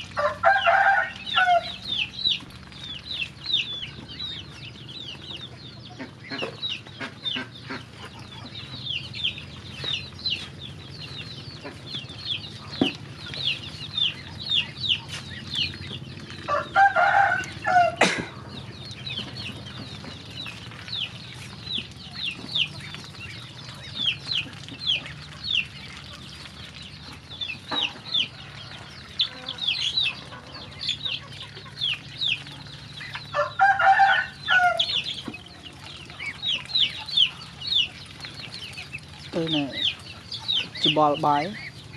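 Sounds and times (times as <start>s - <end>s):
ducklings and chicks peeping: 0.0s - 41.9s
chicken calling: 16.4s - 19.4s, 27.7s - 38.0s.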